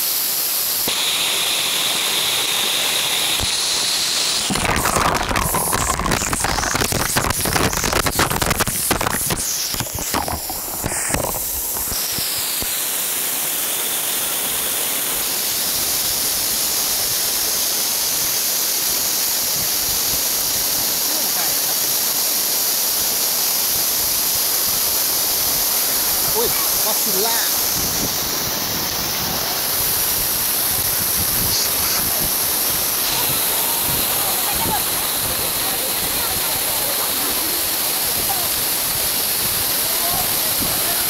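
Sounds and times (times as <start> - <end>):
waterfall rushing: 0.0 - 41.0
water splattering on camera: 4.5 - 12.7.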